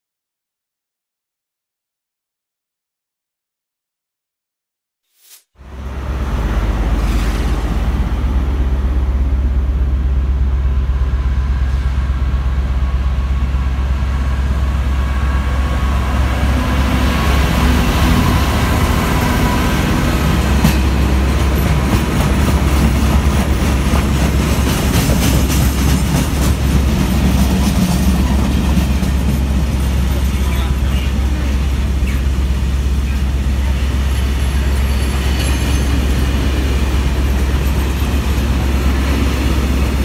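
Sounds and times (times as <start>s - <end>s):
low rumble: 5.6s - 21.6s
diesel locomotive engine running: 5.6s - 40.0s.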